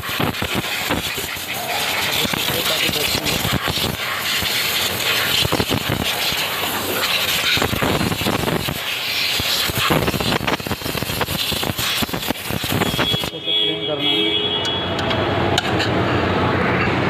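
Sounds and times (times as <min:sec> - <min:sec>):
air blow gun hissing: 0:00.0 - 0:13.4.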